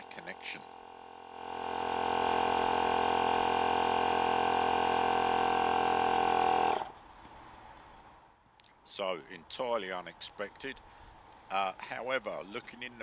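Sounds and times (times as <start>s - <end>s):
electric pump humming: 0.0s - 7.0s.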